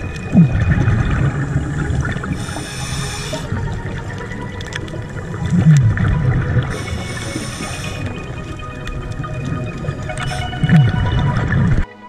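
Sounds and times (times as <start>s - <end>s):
exhaled bubbles gurgling: 0.0s - 11.9s
regulator hiss on inhale: 2.3s - 3.6s, 6.7s - 8.5s.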